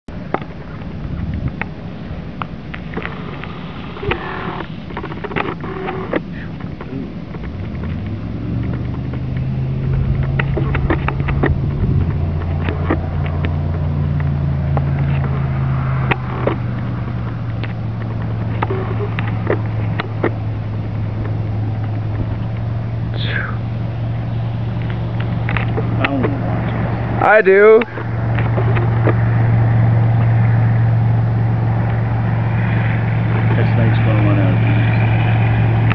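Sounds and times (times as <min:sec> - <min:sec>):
engine idling: 0:00.1 - 0:35.9
sharp clicks: 0:02.4 - 0:23.4, 0:24.6 - 0:30.6.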